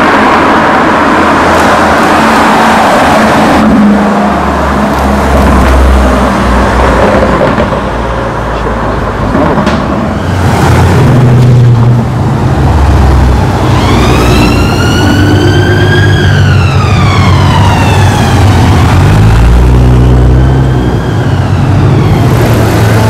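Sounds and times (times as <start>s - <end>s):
siren wailing: 12.8s - 23.0s.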